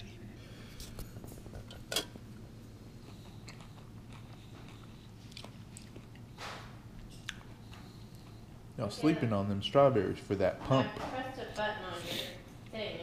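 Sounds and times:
low steady hum: 0:00.0 - 0:13.0
chewing and biting: 0:02.8 - 0:08.4.

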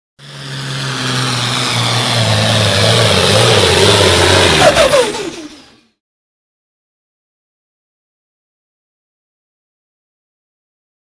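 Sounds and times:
tractor engine running hard: 0:00.2 - 0:06.0.

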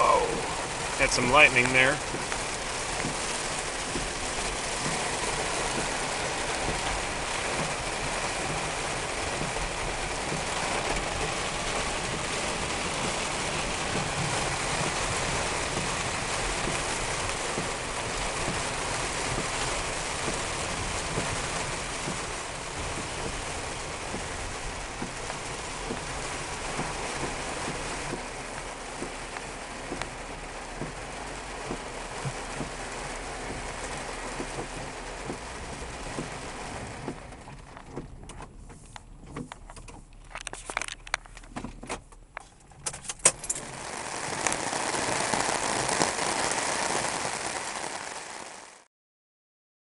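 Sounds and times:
raindrop taps: 0:00.0 - 0:48.8
heavy rain on car roof: 0:00.0 - 0:48.9.

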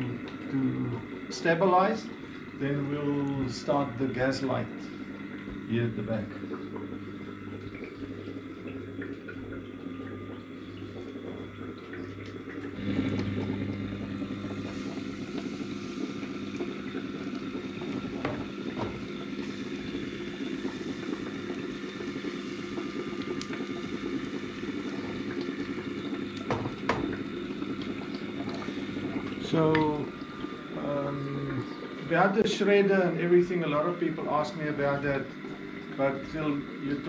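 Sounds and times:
gas burner hum: 0:00.0 - 0:37.0
batter sizzling in a frying pan: 0:14.7 - 0:27.0.

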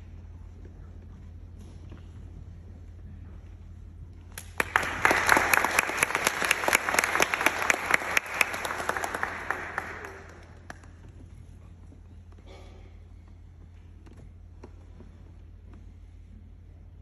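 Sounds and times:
audience applauding: 0:04.4 - 0:11.2.

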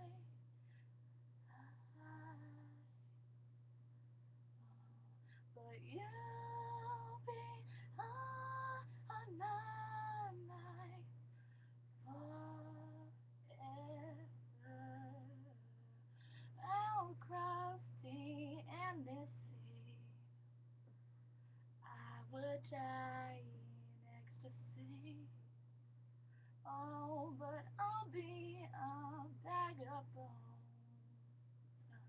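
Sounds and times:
woman singing unaccompanied: 0:00.0 - 0:00.3, 0:01.5 - 0:02.9, 0:04.6 - 0:11.2, 0:12.0 - 0:15.9, 0:16.6 - 0:20.2, 0:21.8 - 0:25.4, 0:26.7 - 0:31.0
steady low hum: 0:00.0 - 0:32.0.

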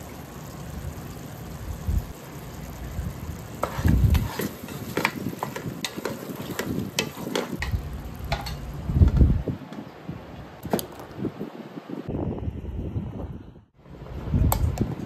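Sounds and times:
faint sizzle: 0:00.0 - 0:09.0
wooden spatula scraping pot: 0:03.6 - 0:08.6.

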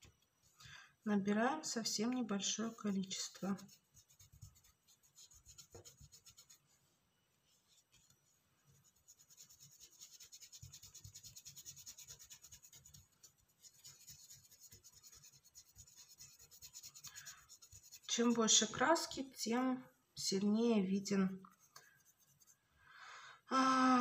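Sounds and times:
paintbrush scratching on porcelain: 0:02.1 - 0:06.8, 0:07.6 - 0:18.6, 0:21.4 - 0:22.6.

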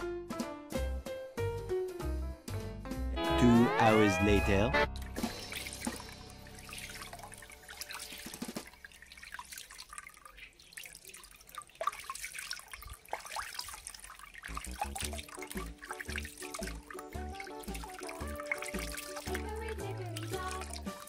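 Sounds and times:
water pouring into a tub: 0:05.0 - 0:21.0.

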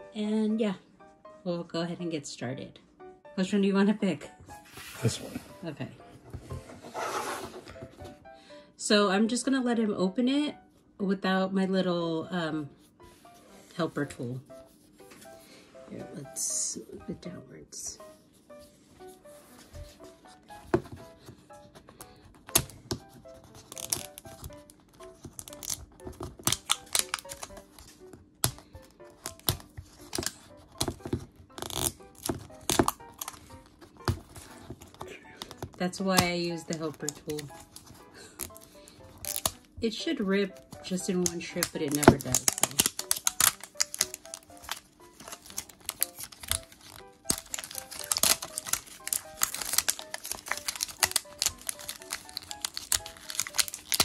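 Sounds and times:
soft background music: 0:00.0 - 0:54.0
plastic wrapping crinkling and tearing: 0:22.4 - 0:35.8, 0:36.7 - 0:39.6, 0:40.6 - 0:54.0.

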